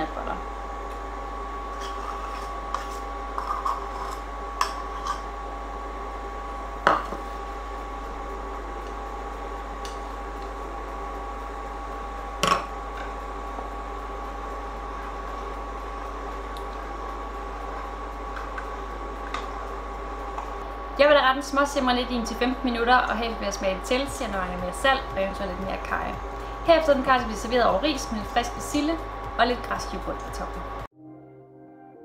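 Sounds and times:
steady whining hum: 0:00.0 - 0:30.9
spoon scraping metal pot: 0:01.7 - 0:05.3.

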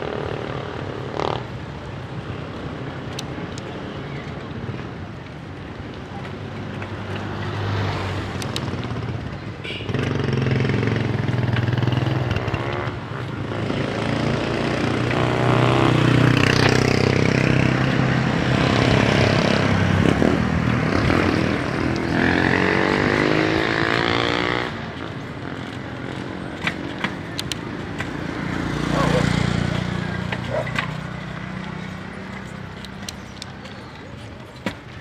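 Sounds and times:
motorcycle engine revving: 0:00.0 - 0:01.6, 0:07.3 - 0:33.4
passing traffic: 0:00.0 - 0:35.0.

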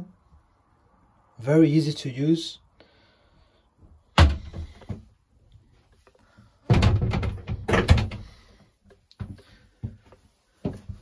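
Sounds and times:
door rattling against frame: 0:06.7 - 0:08.4.

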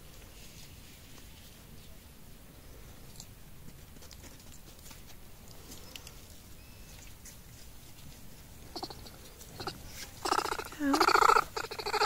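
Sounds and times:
monkeys clambering ticks and rustles: 0:03.0 - 0:12.0
monkey pulsed call: 0:08.7 - 0:12.0.

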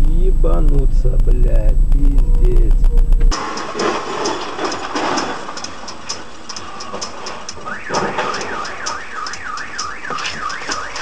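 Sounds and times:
fast even ticking: 0:00.0 - 0:03.4, 0:05.6 - 0:11.0
car alarm wailing: 0:07.5 - 0:11.0.

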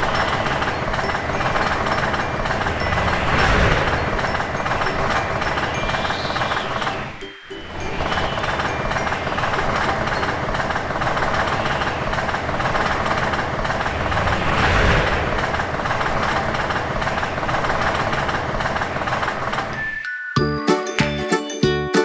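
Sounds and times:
electric train passing: 0:00.0 - 0:22.0.

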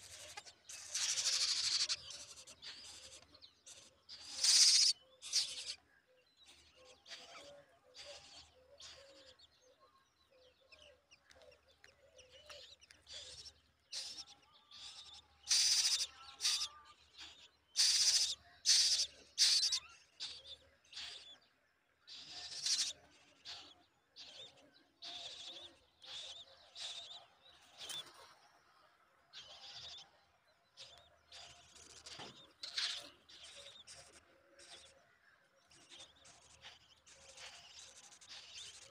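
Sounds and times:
crow nestlings begging calls: 0:00.1 - 0:05.8, 0:13.2 - 0:21.4, 0:22.1 - 0:27.2, 0:31.3 - 0:34.9.

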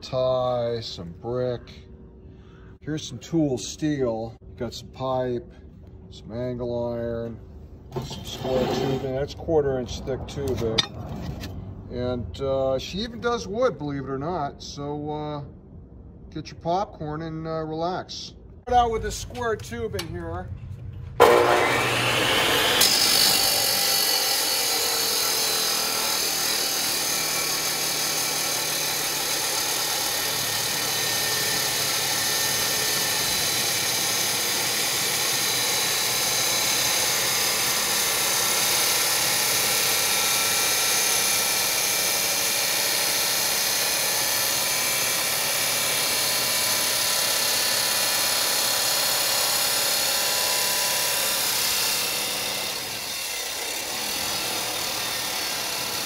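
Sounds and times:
saw blade grinding through steel: 0:08.0 - 0:09.2, 0:21.2 - 0:56.0
saw motor whining: 0:21.2 - 0:56.0.

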